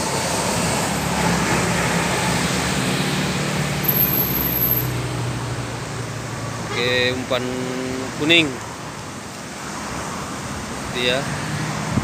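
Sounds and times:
vehicle engine drone: 0:00.0 - 0:09.3
road noise hiss: 0:00.0 - 0:12.0.

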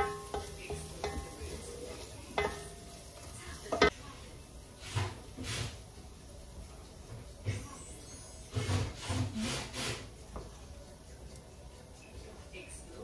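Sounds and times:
wooden spoon knocking on a pan: 0:00.0 - 0:04.0
food sizzling faintly in a pan: 0:00.0 - 0:13.0.

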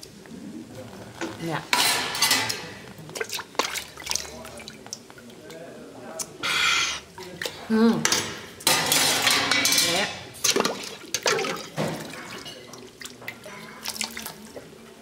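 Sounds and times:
liquid sloshing: 0:00.8 - 0:05.5, 0:10.3 - 0:15.0
ladle clinking against pot: 0:01.7 - 0:02.8.

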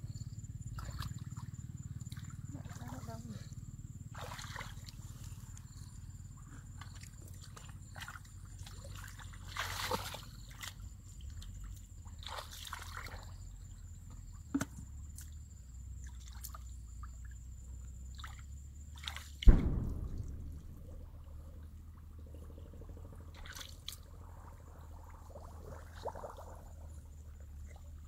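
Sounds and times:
muddy water sloshing: 0:00.7 - 0:03.4, 0:04.1 - 0:15.4, 0:16.0 - 0:28.0
heavy thump: 0:19.5 - 0:21.3.

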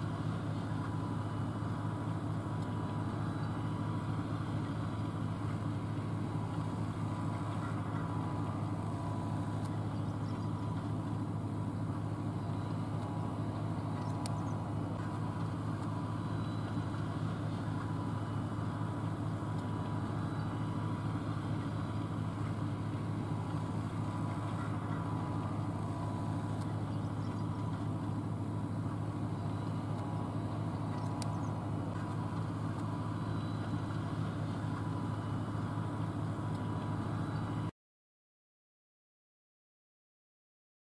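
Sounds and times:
car engine droning: 0:00.0 - 0:37.7.

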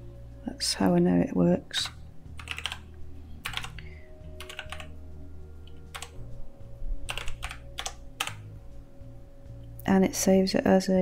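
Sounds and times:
computer keyboard typing: 0:01.7 - 0:05.0, 0:05.6 - 0:06.2, 0:07.1 - 0:08.5.

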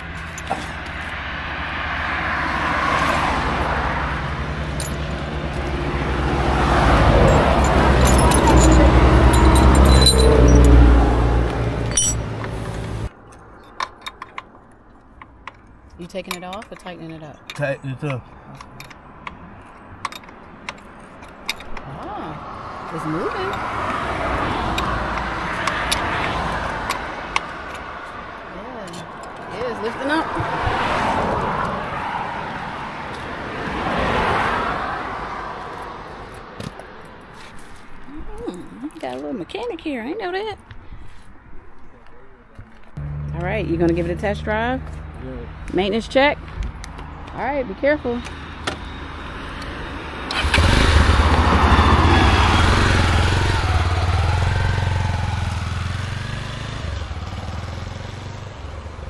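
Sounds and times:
road traffic passing: 0:00.0 - 0:59.0
metal clinks of hand tools: 0:07.2 - 0:10.8, 0:11.8 - 0:12.3.

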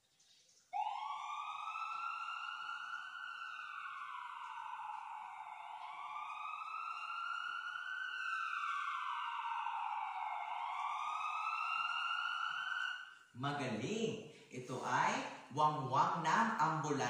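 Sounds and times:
ambulance siren wailing: 0:00.8 - 0:14.0.

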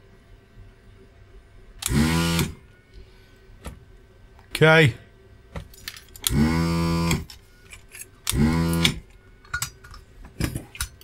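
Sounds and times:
desoldering vacuum pump bursts: 0:01.8 - 0:02.6, 0:06.2 - 0:07.3, 0:08.3 - 0:09.1.

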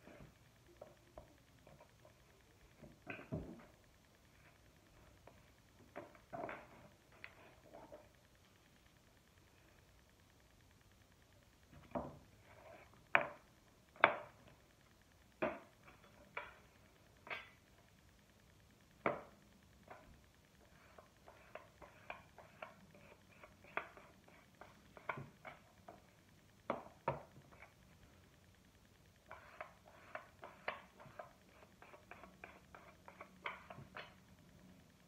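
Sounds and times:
small clicks and taps of pottery tools: 0:15.3 - 0:17.8.

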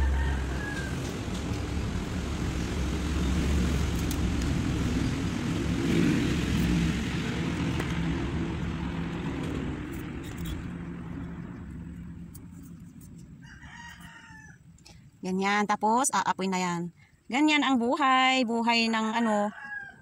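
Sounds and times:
engine rumble passing: 0:00.0 - 0:13.4.

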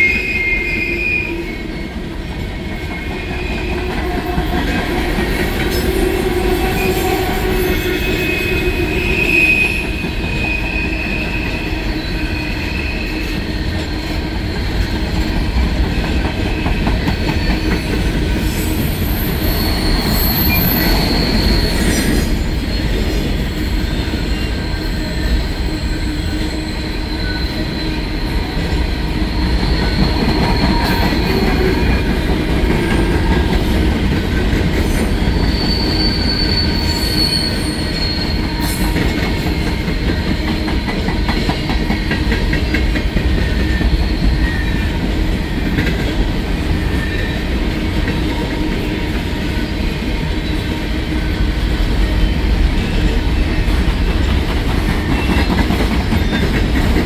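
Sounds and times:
high-pitched wheel squeals: 0:00.0 - 0:01.9, 0:05.7 - 0:14.6, 0:17.0 - 0:32.1, 0:34.9 - 0:41.5
train wheels rumbling on rail: 0:00.0 - 0:57.0.

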